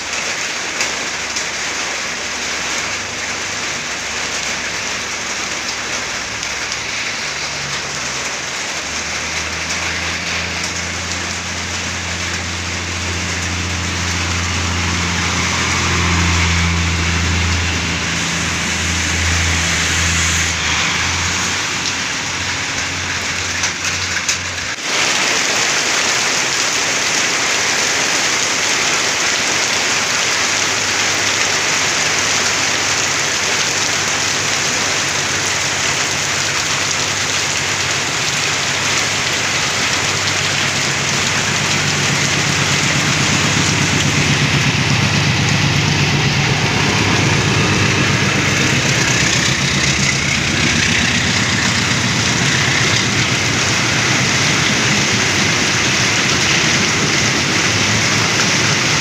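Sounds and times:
diesel locomotive engine hum: 0:00.0 - 0:59.0
heavy rain falling: 0:00.0 - 0:59.0
train passing: 0:00.3 - 0:28.1, 0:29.2 - 0:59.0.

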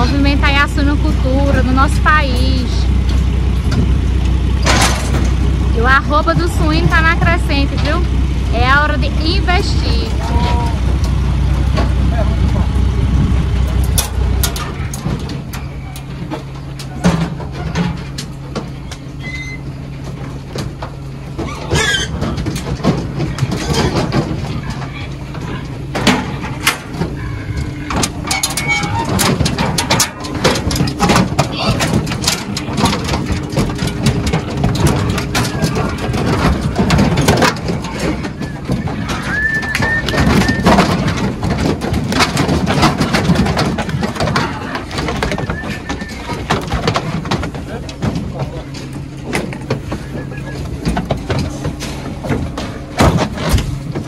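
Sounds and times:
metallic knocks and clanks: 0:00.0 - 0:54.0
truck engine idling: 0:00.0 - 0:54.0
pigs squeaking: 0:13.7 - 0:54.0.

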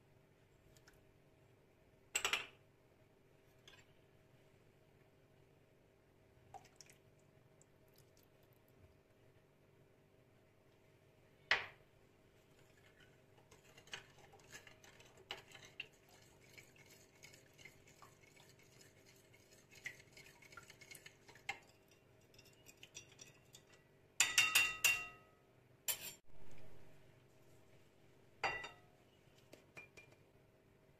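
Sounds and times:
spoon stirring in glass bowl: 0:12.5 - 0:25.0
spoon clinking on glass: 0:24.2 - 0:25.2.

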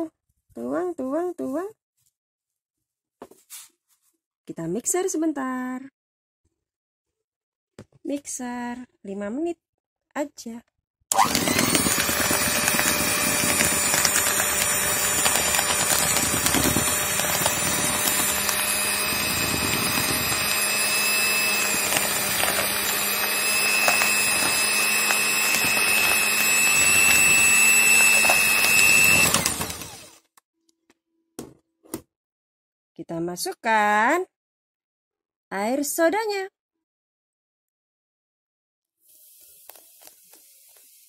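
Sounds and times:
electric hand mixer whining: 0:11.1 - 0:30.3.

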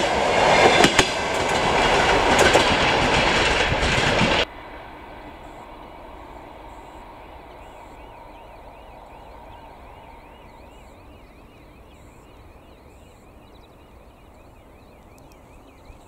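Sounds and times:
diesel train rumble: 0:00.0 - 0:15.0
level-crossing electronic warble: 0:05.2 - 0:16.0.

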